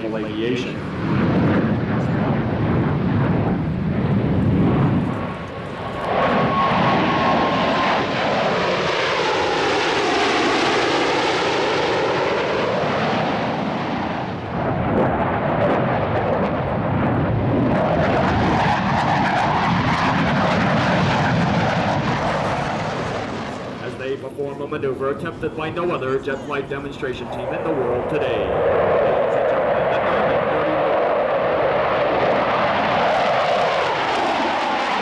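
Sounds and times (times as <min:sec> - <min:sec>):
jet engines passing low: 0:00.0 - 0:35.0.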